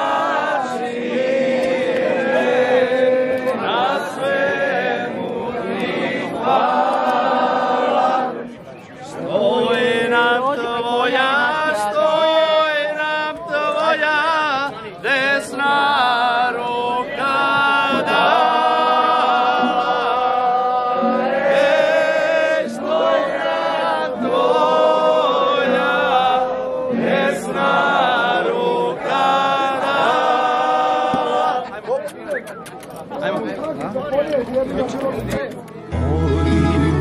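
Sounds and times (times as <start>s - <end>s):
group singing folk song: 0.0s - 31.7s, 35.9s - 37.0s.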